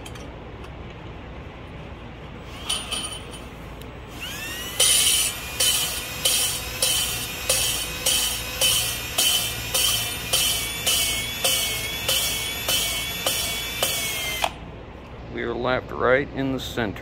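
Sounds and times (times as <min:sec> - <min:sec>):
drill motor whining: 0:04.1 - 0:14.6.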